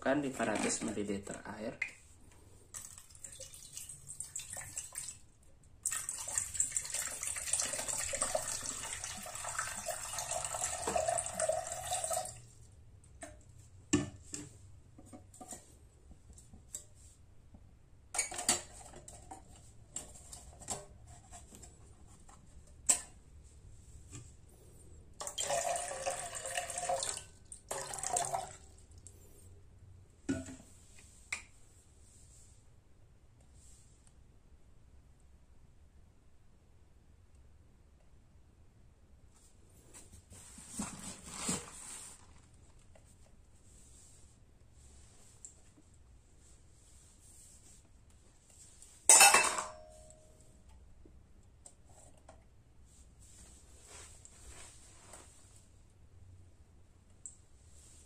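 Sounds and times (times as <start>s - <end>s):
water pouring into mug: 2.8s - 5.2s, 5.8s - 12.4s, 25.2s - 28.6s.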